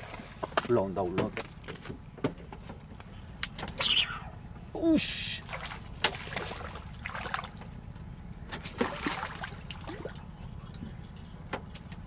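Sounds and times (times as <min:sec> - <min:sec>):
water splashing and trickling: 0:04.8 - 0:10.9.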